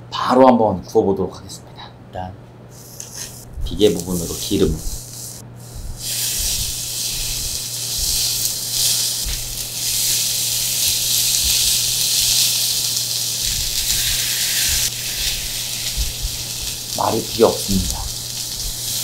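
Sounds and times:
pork sizzling on a griddle: 0:04.1 - 0:19.0.

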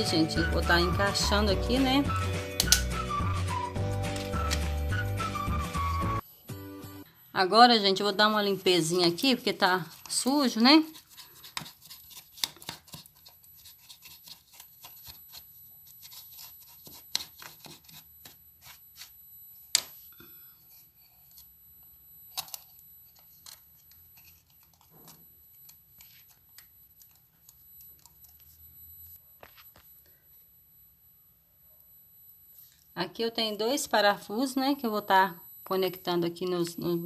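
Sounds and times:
hand scratching and rubbing: 0:08.8 - 0:19.2.

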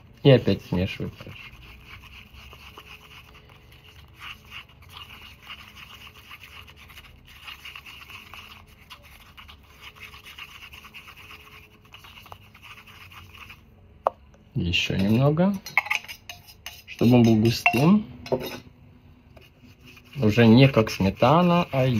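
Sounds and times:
brush scraping in a paper cup: 0:00.0 - 0:13.7, 0:15.9 - 0:17.6, 0:19.4 - 0:21.9.

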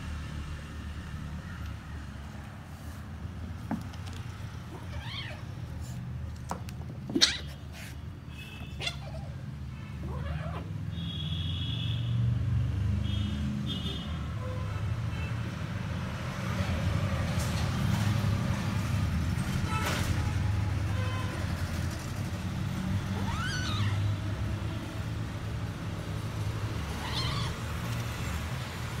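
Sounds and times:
kitten meowing: 0:04.7 - 0:05.5, 0:23.1 - 0:24.1, 0:27.0 - 0:27.7.

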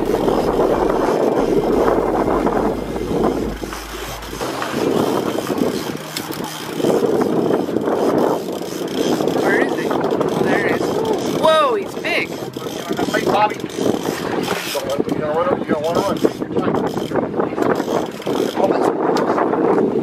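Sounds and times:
low steady hum: 0:00.0 - 0:05.1
water washing against a boat: 0:00.0 - 0:20.0
wind on microphone: 0:00.0 - 0:20.0.

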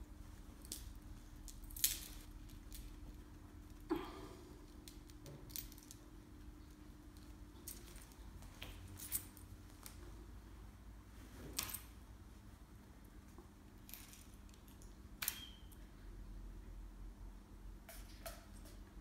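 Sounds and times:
low steady hum: 0:00.0 - 0:19.0
metal clip clinking on tile floor: 0:01.5 - 0:02.9, 0:13.8 - 0:15.5.

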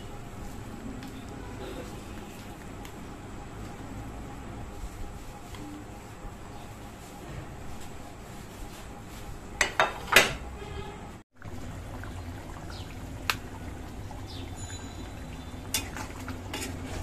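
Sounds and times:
dishes knocking: 0:09.6 - 0:10.4
curry simmering and bubbling: 0:11.3 - 0:17.0.

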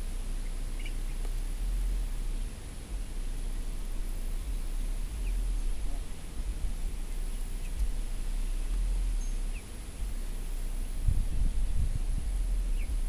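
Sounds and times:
wind rumble on microphone: 0:00.0 - 0:13.0
chicks peeping: 0:00.4 - 0:01.3, 0:04.5 - 0:10.5.

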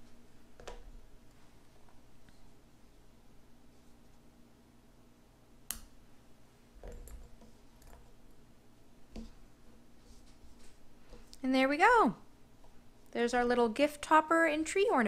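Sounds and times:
faint rustling of hands: 0:09.2 - 0:11.4.

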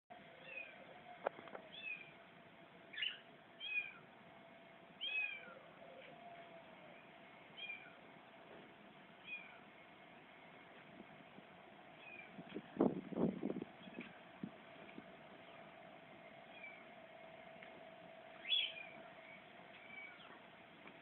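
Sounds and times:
small animal high calls: 0:00.4 - 0:00.9, 0:01.7 - 0:02.1, 0:02.9 - 0:04.1, 0:05.0 - 0:05.7, 0:07.6 - 0:08.0, 0:09.2 - 0:09.7, 0:12.0 - 0:12.3, 0:16.5 - 0:16.9, 0:18.4 - 0:20.4.

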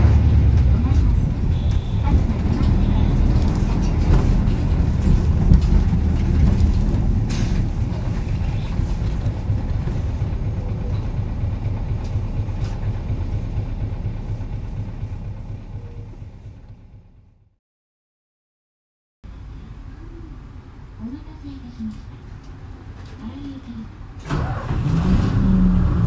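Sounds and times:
bus diesel engine running: 0:00.0 - 0:17.5, 0:19.3 - 0:26.0.

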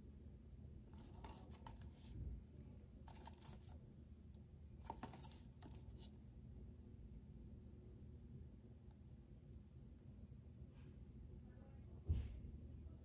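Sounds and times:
low steady hum: 0:00.0 - 0:13.0
cardboard sleeve scraping and rustling: 0:01.0 - 0:02.1, 0:04.8 - 0:06.1.

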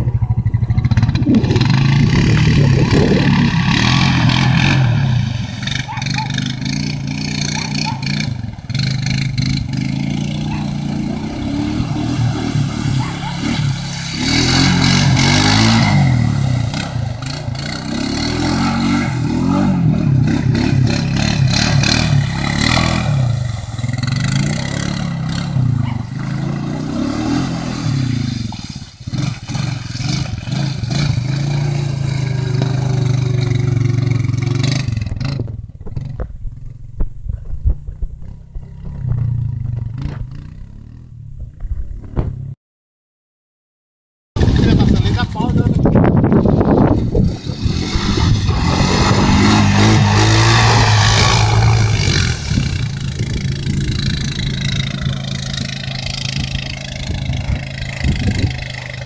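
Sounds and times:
water splashing from wheels: 0:00.0 - 0:40.7, 0:44.4 - 0:59.0
atv engine revving: 0:00.0 - 0:42.5, 0:44.4 - 0:59.0.

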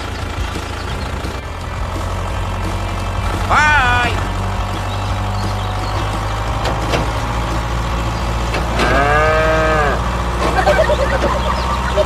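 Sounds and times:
tractor engine humming: 0:00.0 - 0:12.0
cow mooing: 0:08.7 - 0:12.0.

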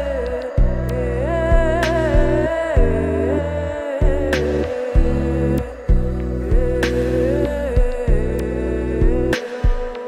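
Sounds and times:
slow song with sustained chords: 0:00.0 - 0:10.0.

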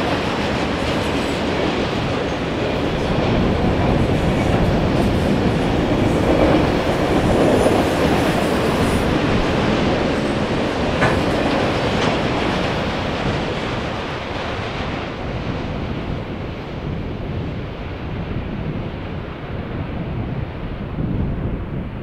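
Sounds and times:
train cars rolling on rails: 0:00.0 - 0:16.6.

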